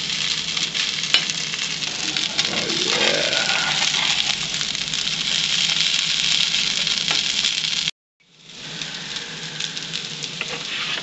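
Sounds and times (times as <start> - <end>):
mushrooms sizzling in a pan: 0.0 - 11.0
spatula turning food: 1.1 - 4.6, 10.4 - 11.0.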